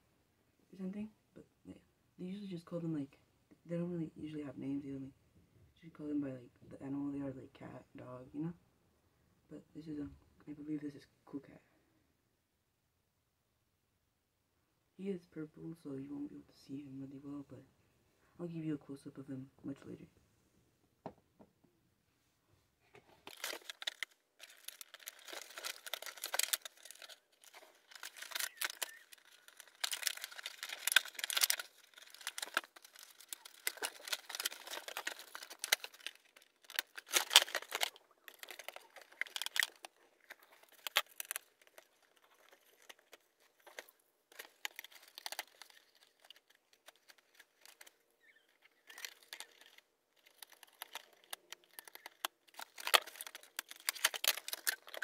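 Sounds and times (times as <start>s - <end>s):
packaging crinkling and tearing: 23.0s - 55.0s.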